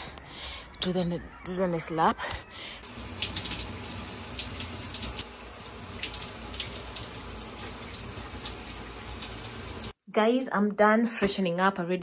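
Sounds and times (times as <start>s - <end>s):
running water splashing: 2.8s - 10.0s.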